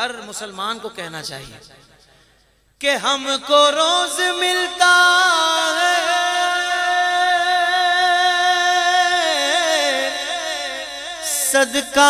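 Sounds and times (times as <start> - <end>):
man singing devotional song: 2.8 - 12.0.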